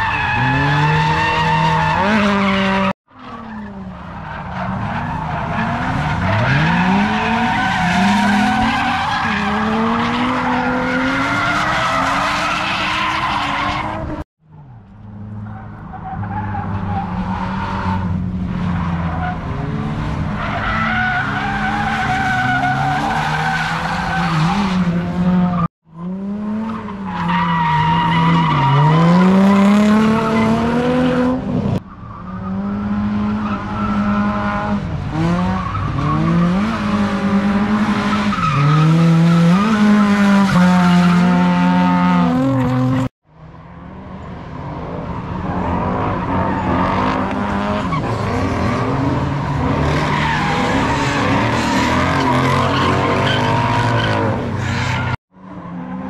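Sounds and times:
car engines revving hard: 0.0 - 12.6, 16.0 - 43.1, 44.7 - 56.0.

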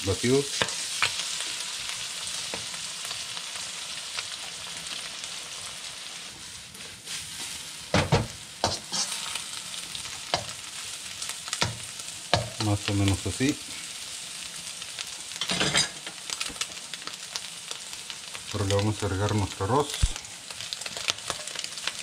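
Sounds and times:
eggs sizzling in hot oil: 0.0 - 22.0
metal spoon scraping wok: 8.6 - 9.3.

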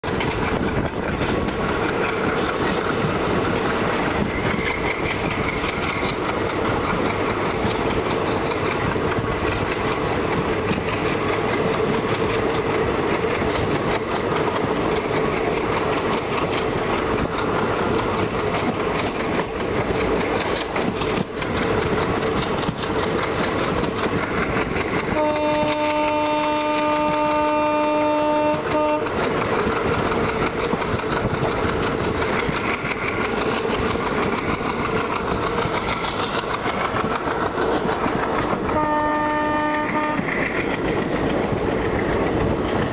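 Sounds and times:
diesel locomotive chugging: 0.0 - 42.9
train horn blast: 25.2 - 29.2, 38.7 - 40.4.

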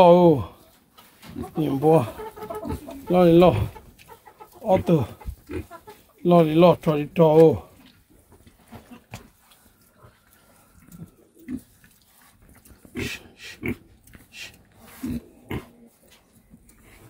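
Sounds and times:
pigs grunting: 1.3 - 3.8, 4.5 - 6.0, 12.8 - 16.0.

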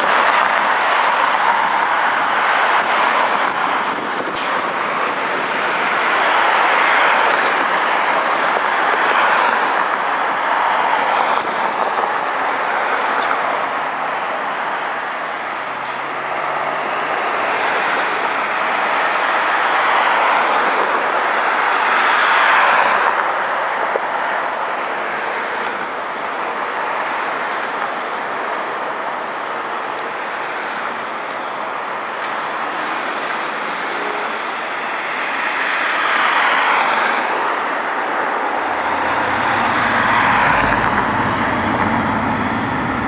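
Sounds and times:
road traffic noise: 0.0 - 43.0
diesel bus driving past: 38.2 - 43.0.

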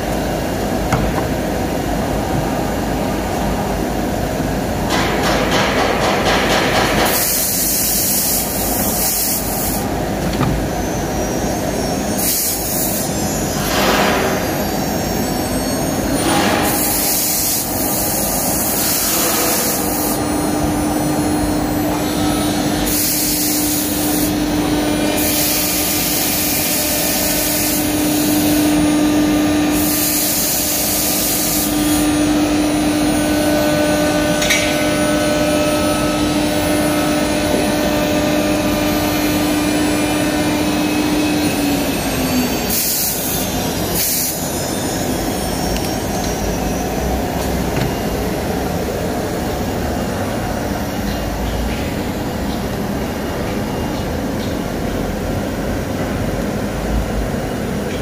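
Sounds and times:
machine drone: 0.0 - 58.0
cnc spindle whine: 7.2 - 58.0
hiss of cutting: 22.8 - 24.4.

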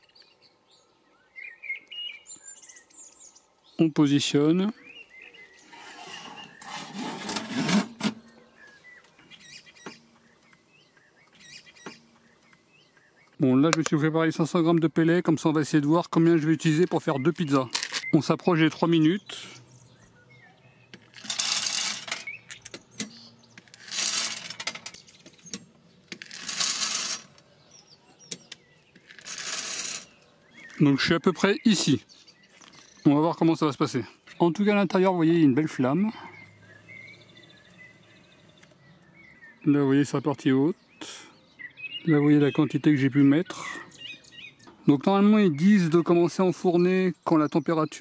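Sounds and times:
faint bird chirp: 0.0 - 7.0, 8.2 - 13.6, 16.3 - 21.2, 27.3 - 48.0
metal tray scraping: 5.6 - 8.3, 21.0 - 22.4, 23.6 - 25.1, 26.2 - 27.4, 29.1 - 30.2
metal tray clunk: 6.2 - 8.3
wood pellets clattering into metal hopper: 21.1 - 22.4, 23.7 - 25.0, 26.2 - 27.3, 29.1 - 30.1.

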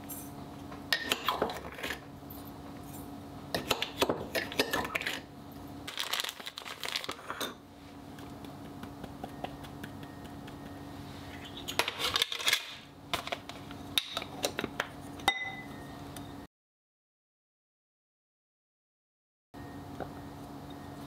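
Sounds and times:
faint steady hum: 0.0 - 16.5, 19.6 - 21.0
foil packet rustling: 5.9 - 7.4
spoon clinking on glass bowl: 15.3 - 15.8.

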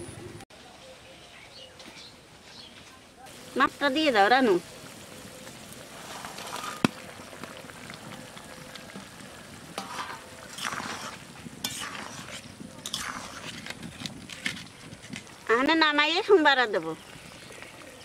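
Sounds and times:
curry sizzling: 3.2 - 18.0
ladle scraping pan: 5.9 - 7.0, 9.7 - 15.4.

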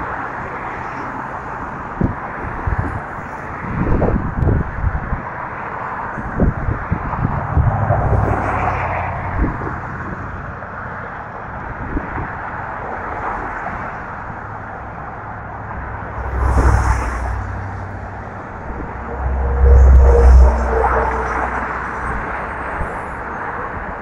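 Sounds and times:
road traffic tyre hiss: 0.0 - 24.0
wind buffeting microphone: 1.7 - 10.8, 11.4 - 24.0.

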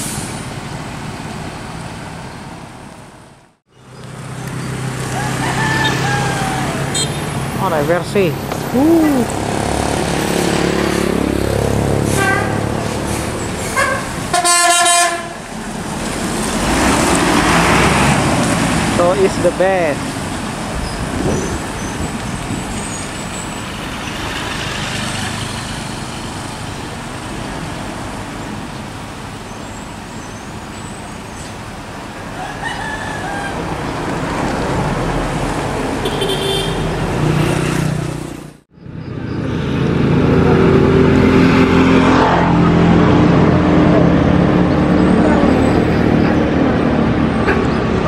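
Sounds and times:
bus diesel engine running: 0.0 - 37.3
road traffic: 0.0 - 48.0.

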